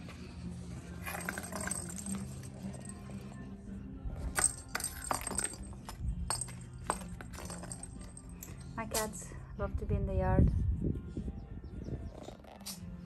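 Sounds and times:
light background music: 0.0 - 13.0.

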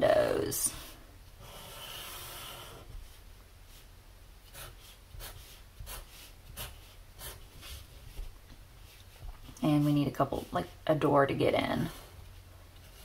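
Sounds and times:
marker scratching on paper: 1.4 - 2.8, 4.5 - 8.0.

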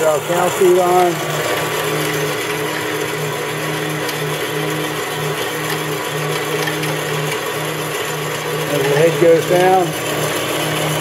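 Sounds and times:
band saw running: 0.0 - 11.0.

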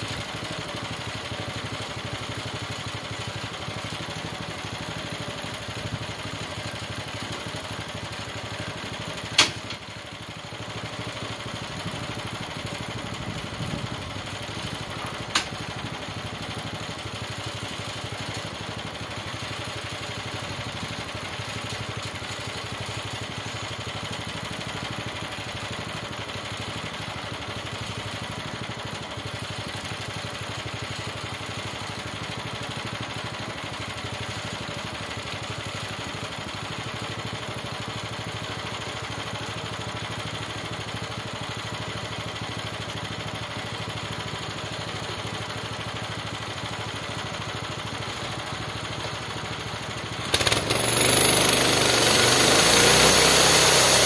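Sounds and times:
small gasoline engine: 0.0 - 54.0
band saw cutting log: 50.3 - 54.0.

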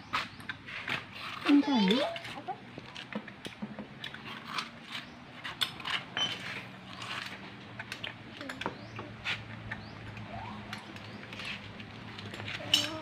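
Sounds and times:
tools clinking on motorcycle engine: 5.6 - 9.0, 10.7 - 13.0.

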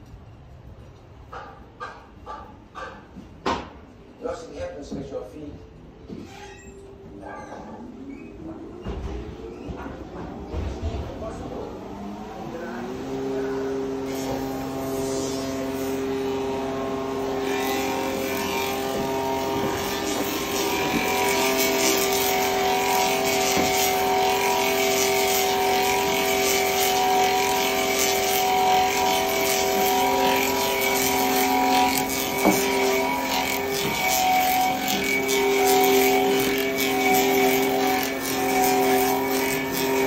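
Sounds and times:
machine motor whine: 8.2 - 40.0
hiss: 14.2 - 15.9.

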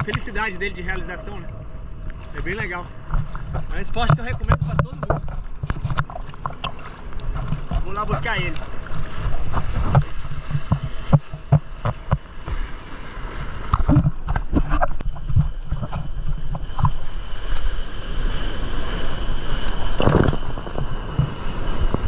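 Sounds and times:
wind rumble on microphone: 0.0 - 22.0.

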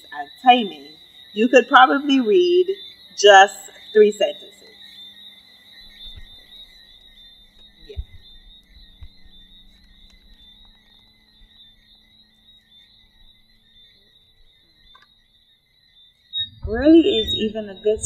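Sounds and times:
high-pitched night chorus: 0.0 - 4.7, 16.4 - 18.0
low hum: 16.4 - 18.0.

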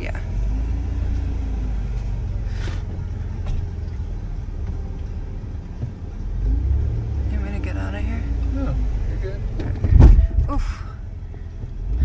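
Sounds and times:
engine and road rumble: 0.0 - 12.0
knocks and rattles: 9.4 - 11.9.

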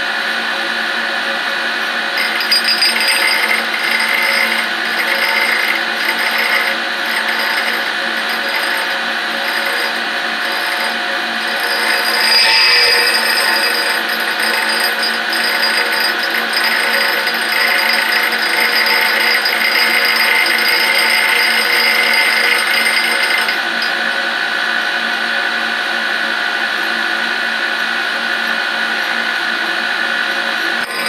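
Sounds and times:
grinder motor hum: 1.2 - 25.4, 30.2 - 31.0
grinding wheel hiss: 2.2 - 24.2, 30.8 - 31.0.

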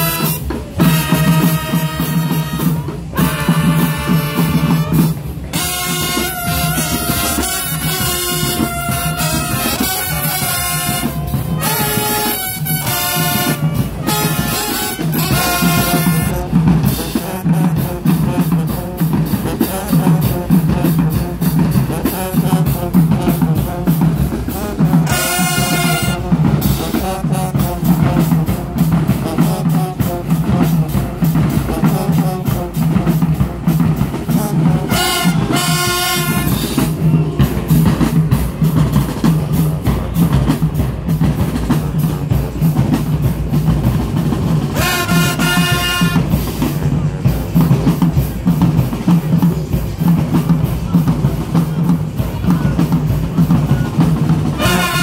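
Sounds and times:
short horn blasts: 0.0 - 16.5, 25.0 - 27.8, 34.3 - 36.8, 44.8 - 46.4, 54.6 - 55.0
marching drum line cadence: 0.0 - 55.0.

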